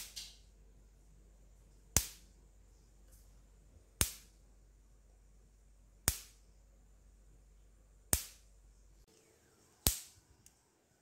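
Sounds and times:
high-voltage spark snapping: 0:02.0 - 0:02.3, 0:04.0 - 0:04.3, 0:06.0 - 0:06.4, 0:08.1 - 0:08.5, 0:09.8 - 0:10.2.

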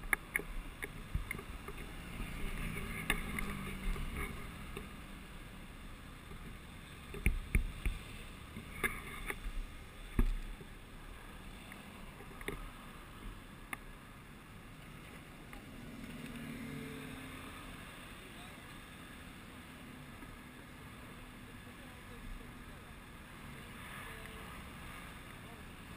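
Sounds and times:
engine hum: 0:00.0 - 0:25.9
traffic rumble: 0:00.0 - 0:25.9.

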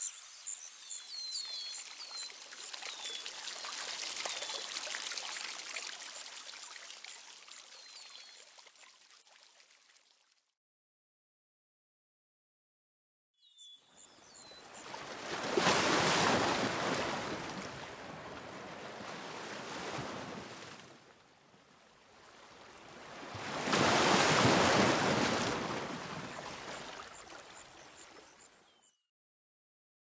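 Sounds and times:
waves washing onto shore: 0:14.6 - 0:21.0, 0:22.2 - 0:28.0.

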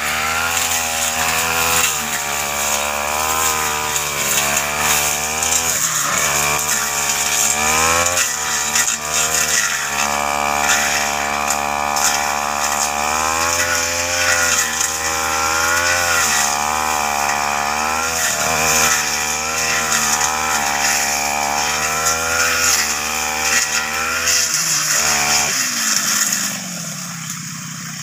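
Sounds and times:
brush cutter engine running: 0:00.0 - 0:28.0.

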